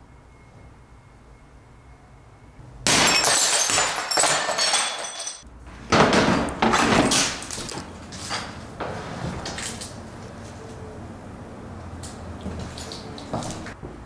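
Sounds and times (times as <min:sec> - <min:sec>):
window glass shattering: 0:02.8 - 0:05.4, 0:06.0 - 0:08.6
glass shards tinkling: 0:02.9 - 0:05.4.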